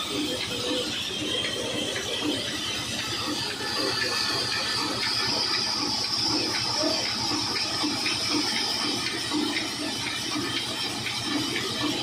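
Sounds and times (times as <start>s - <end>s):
sawmill hiss and hum: 0.0s - 12.0s.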